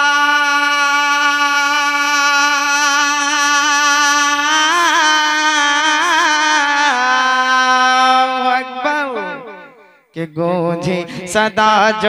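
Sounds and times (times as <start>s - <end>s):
man singing into a microphone: 0.0s - 12.0s.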